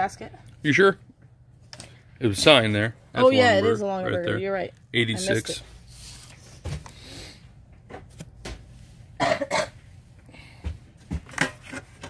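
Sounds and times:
person coughing: 9.2s - 9.8s.

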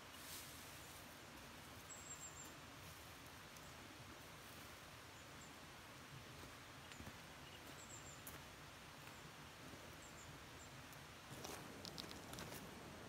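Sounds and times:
small birds chirping: 0.0s - 5.7s, 6.3s - 13.0s
faint forest ambience: 0.0s - 13.0s
faint clicks: 10.9s - 12.6s.

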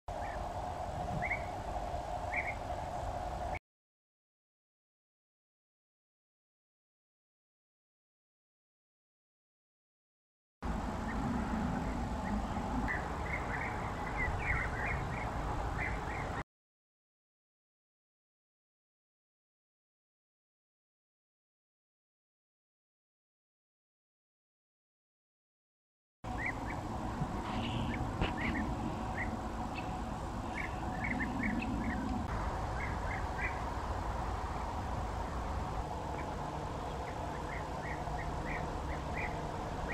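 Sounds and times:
birds calling: 0.1s - 0.5s, 1.1s - 2.8s, 10.9s - 16.4s, 26.3s - 39.9s
steady low rumble: 0.1s - 3.6s, 10.6s - 16.4s, 26.3s - 39.9s.

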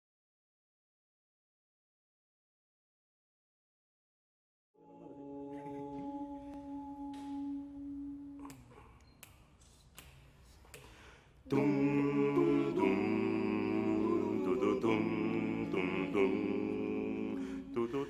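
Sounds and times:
male vocal group singing harmony: 11.4s - 18.0s.

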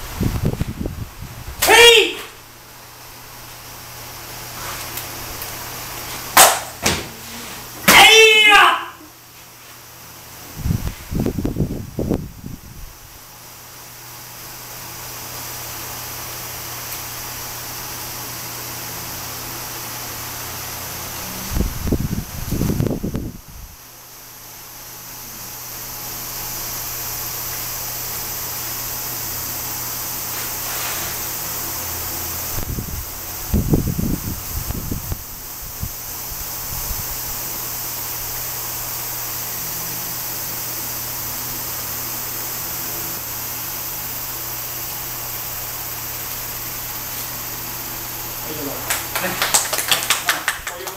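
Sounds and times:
steady hiss: 20.2s - 50.9s.

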